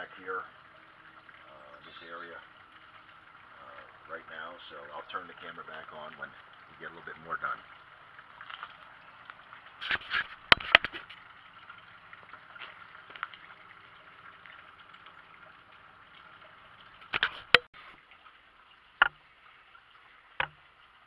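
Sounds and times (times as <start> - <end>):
faint steady hiss: 0.0 - 21.0
sharp clicks and knocks: 9.8 - 11.2, 17.0 - 17.7, 19.0 - 19.2, 20.4 - 20.6.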